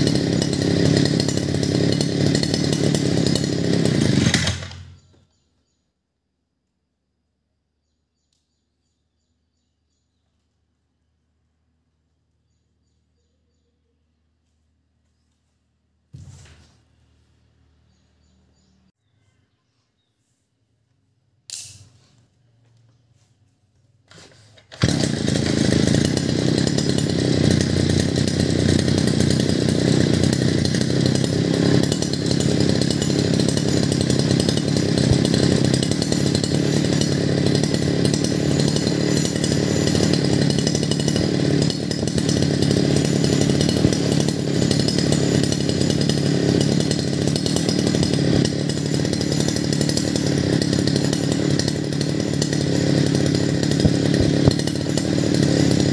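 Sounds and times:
brush cutter engine running: 0.0s - 5.4s, 24.1s - 55.9s
click: 8.3s - 8.5s.

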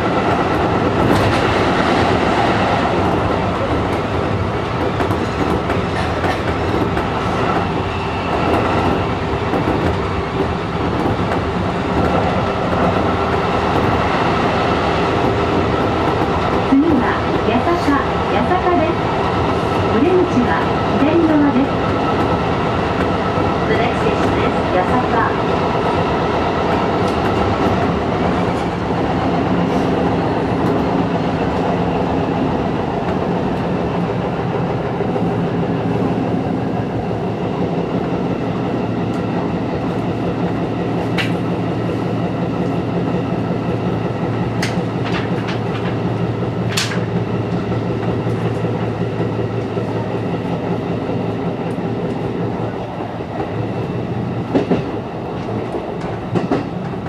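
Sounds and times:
train wheels rumbling: 0.0s - 57.0s
wheels clicking over rail joints: 44.6s - 47.2s.

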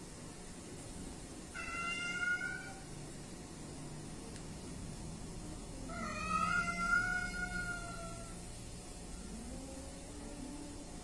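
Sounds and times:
cat yowling: 1.5s - 2.9s, 5.8s - 8.4s.

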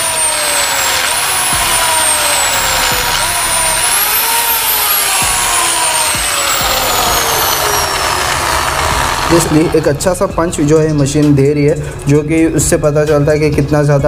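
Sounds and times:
cutter motor whine: 0.0s - 10.1s.

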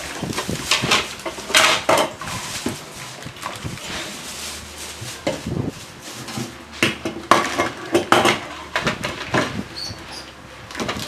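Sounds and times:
plastic pieces rattling and clacking: 0.0s - 3.8s
plastic bag crinkling: 0.0s - 9.4s.

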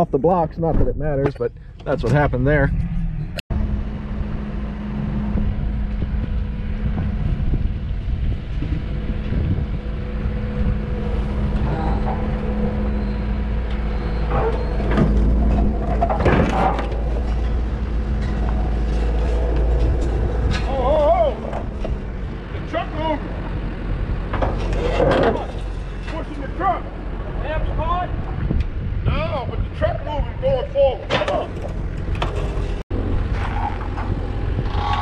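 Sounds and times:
engine running: 1.5s - 30.2s, 31.0s - 35.0s
car clunking and scraping: 9.2s - 27.6s, 31.0s - 35.0s.

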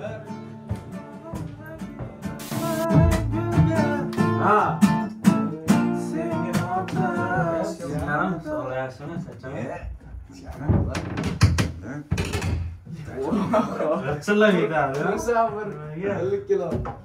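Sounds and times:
man singing: 0.0s - 8.6s
acoustic guitar: 0.0s - 9.3s.

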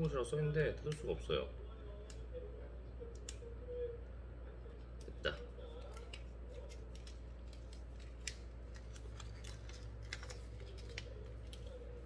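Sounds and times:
plastic film wrapper crinkling: 5.7s - 12.0s.

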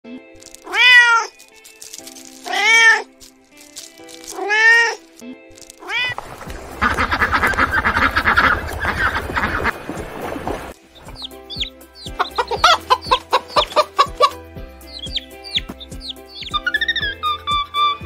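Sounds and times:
cat meowing: 0.6s - 1.4s, 2.4s - 3.1s, 4.3s - 5.1s, 5.8s - 6.2s
geese calling: 5.8s - 18.0s.

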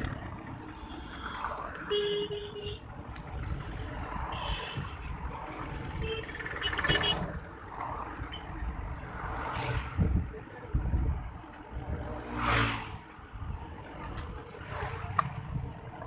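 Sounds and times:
road traffic: 0.0s - 16.0s
wind rumbling on microphone: 7.0s - 16.0s.

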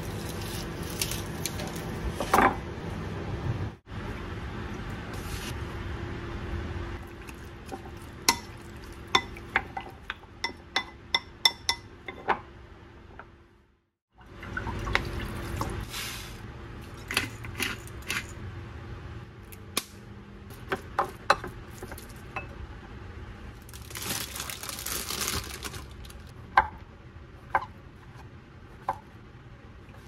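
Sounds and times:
spoon tapping ceramic bowl: 10.4s - 12.3s.

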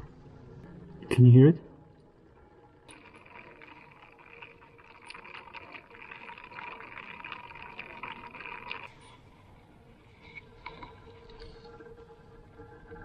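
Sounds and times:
fizzing crackle of tiny pops: 2.8s - 9.1s.

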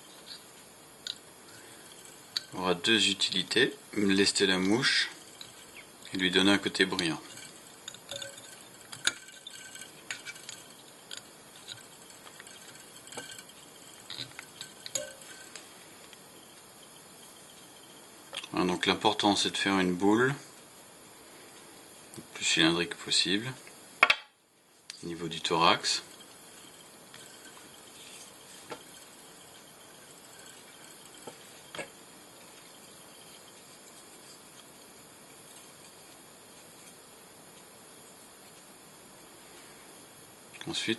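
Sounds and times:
faint steady hiss: 0.0s - 40.9s
wire winding small clicks: 1.0s - 2.6s, 4.1s - 16.8s, 24.9s - 37.0s.

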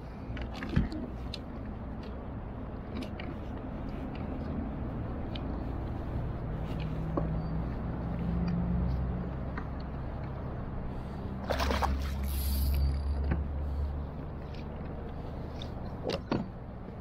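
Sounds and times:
low motor hum: 0.0s - 17.0s
net knocking and splashing in water: 11.4s - 12.2s.

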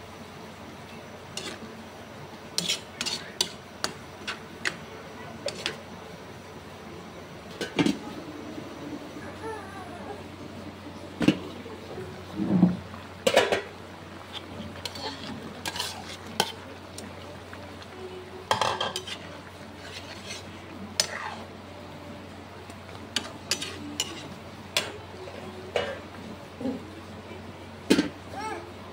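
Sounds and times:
ladle stirring stew in wok: 1.2s - 5.9s, 12.4s - 21.7s, 22.4s - 26.6s.

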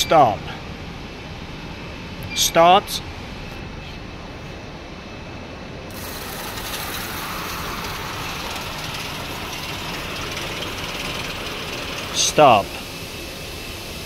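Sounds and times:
packaging machine running: 5.9s - 12.9s
hiss: 5.9s - 14.0s.

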